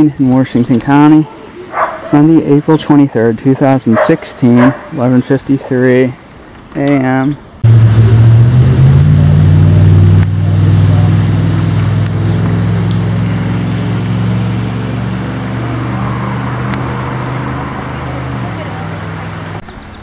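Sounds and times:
low engine drone: 0:07.6 - 0:19.6.

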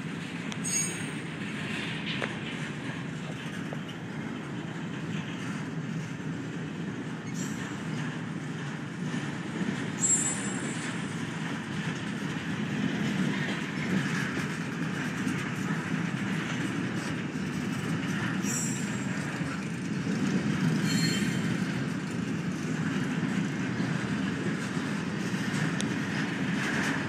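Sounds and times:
train wheels rumbling on rail: 0:00.0 - 0:27.0
high-pitched wheel squeals: 0:00.6 - 0:01.1, 0:10.0 - 0:10.8, 0:18.4 - 0:18.9, 0:20.8 - 0:21.5.

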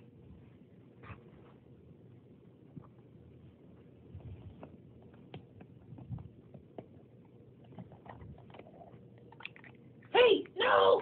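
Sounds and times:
bedding rustling: 0:00.2 - 0:06.7.

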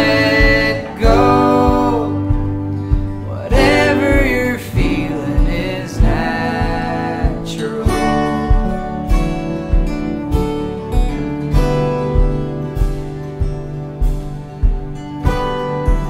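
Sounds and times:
person singing: 0:00.0 - 0:09.2
acoustic guitar: 0:00.0 - 0:16.0
steady low beat: 0:00.0 - 0:16.0.

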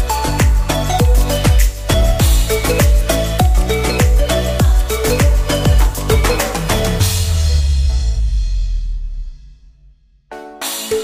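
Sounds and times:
dance music with kick drums: 0:00.0 - 0:08.2.

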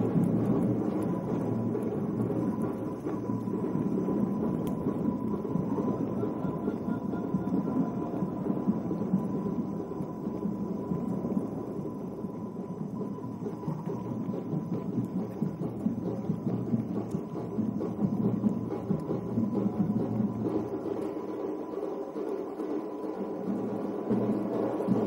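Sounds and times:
thin high whine: 0:00.8 - 0:15.9.

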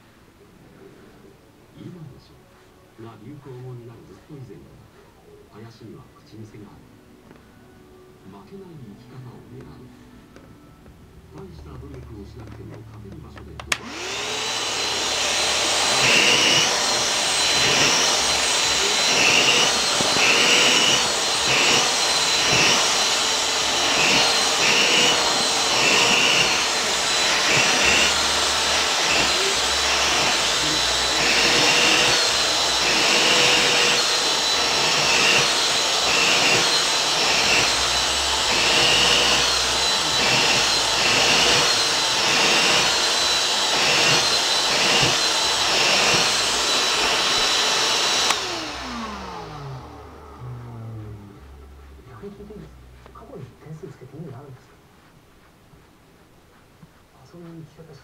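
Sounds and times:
vacuum cleaner running: 0:11.3 - 0:54.5
vacuum motor winding down: 0:13.7 - 0:52.9.

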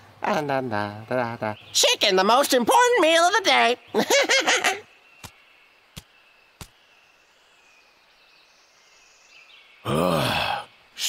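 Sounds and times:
soft outdoor hiss: 0:00.0 - 0:11.0.

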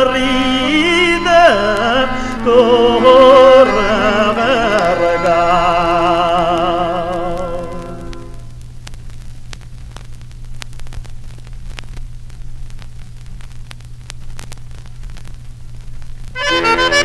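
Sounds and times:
music: 0:00.0 - 0:08.6, 0:16.4 - 0:17.0
vinyl crackles and clicks: 0:00.0 - 0:17.0
vinyl hiss and hum: 0:00.0 - 0:17.0.

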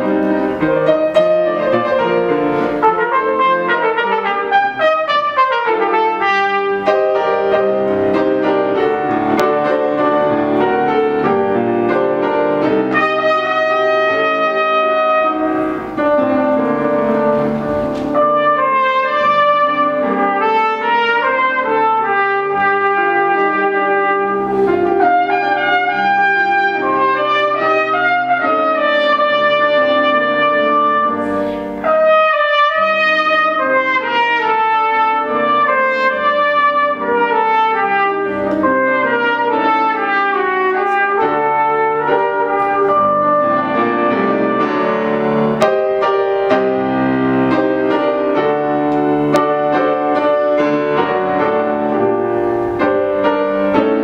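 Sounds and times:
piano accompaniment: 0:00.0 - 0:54.0
solo trumpet melody: 0:00.0 - 0:54.0.

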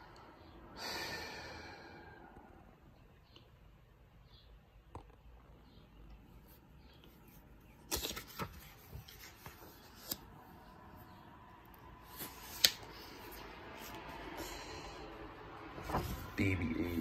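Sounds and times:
book pages rustling: 0:06.5 - 0:10.6, 0:12.0 - 0:14.3, 0:15.8 - 0:16.5
crisp page snap: 0:12.4 - 0:12.9.

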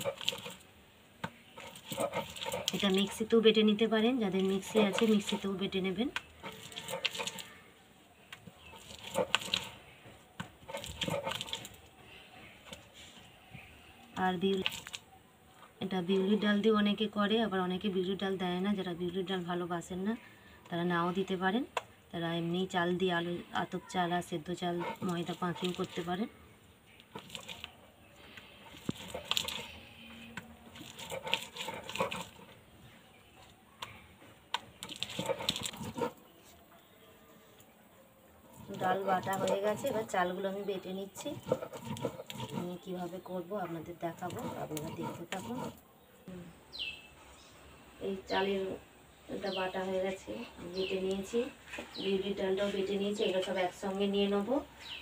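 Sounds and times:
stone grinding wet paste: 0:00.0 - 0:00.6, 0:01.2 - 0:07.6, 0:08.4 - 0:11.8, 0:24.6 - 0:26.2, 0:26.9 - 0:27.8, 0:28.4 - 0:32.6, 0:34.5 - 0:36.2, 0:38.5 - 0:45.8.

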